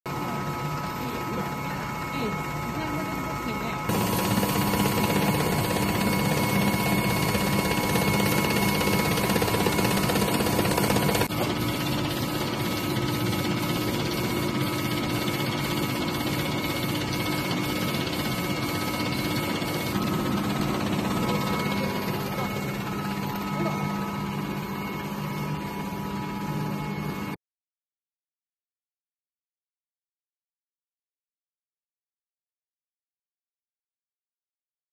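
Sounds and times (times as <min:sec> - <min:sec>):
printer whirring and humming: 0:00.1 - 0:27.4.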